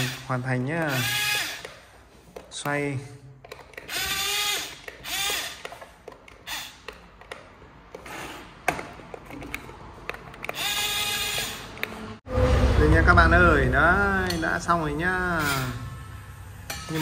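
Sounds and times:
toy gear motor whining: 0:00.9 - 0:01.8, 0:03.8 - 0:06.9, 0:10.5 - 0:11.8.

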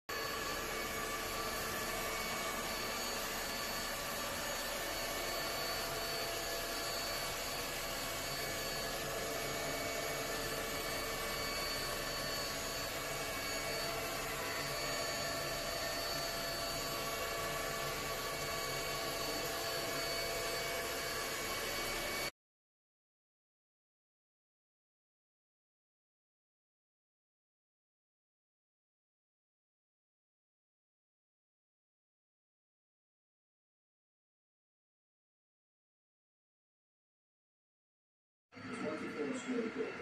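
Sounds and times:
robot mop motor whirring: 0:00.1 - 0:22.3.

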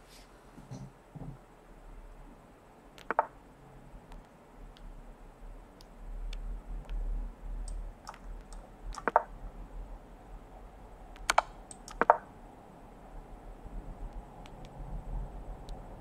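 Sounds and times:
chess move clicks: 0:03.0 - 0:03.4, 0:07.6 - 0:09.3, 0:11.1 - 0:12.3, 0:14.1 - 0:14.8.

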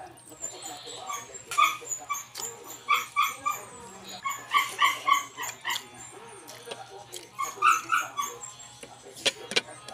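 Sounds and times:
dog whimpering and yipping: 0:00.4 - 0:06.4, 0:07.4 - 0:08.6
chewing and lip-smacking clicks: 0:06.5 - 0:07.3.

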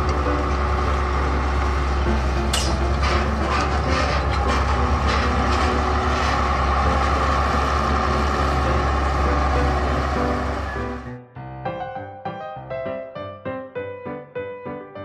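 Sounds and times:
diesel engine rumbling: 0:00.0 - 0:11.3
sharp metallic clanks: 0:02.5 - 0:04.5.

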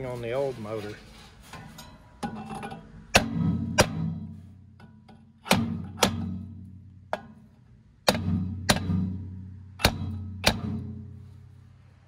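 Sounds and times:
sledgehammer clanking on metal shaft: 0:01.5 - 0:11.5.

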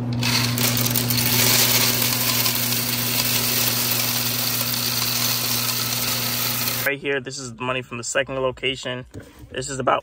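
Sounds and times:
candies rattling into hopper: 0:00.0 - 0:06.9.

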